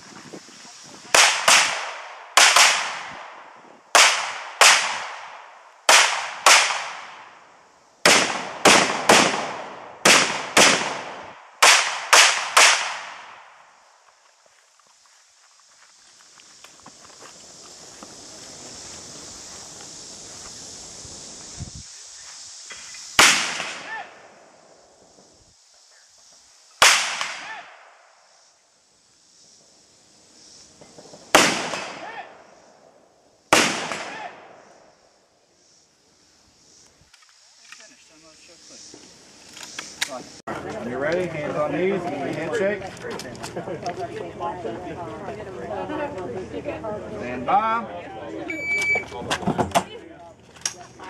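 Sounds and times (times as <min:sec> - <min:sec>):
gunshots echoing: 0:01.1 - 0:07.3, 0:08.0 - 0:13.5, 0:23.2 - 0:24.2, 0:26.8 - 0:27.9, 0:31.3 - 0:32.3, 0:33.5 - 0:34.6.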